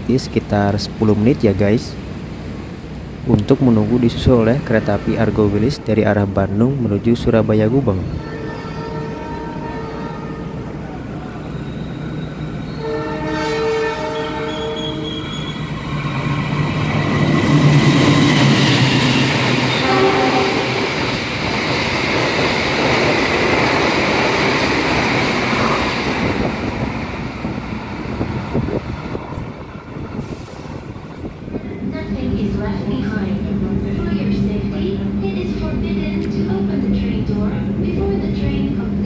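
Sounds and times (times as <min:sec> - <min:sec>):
passing train rush and clatter: 0:00.0 - 0:39.0
train horn: 0:08.1 - 0:10.7, 0:12.7 - 0:15.4, 0:19.7 - 0:21.0.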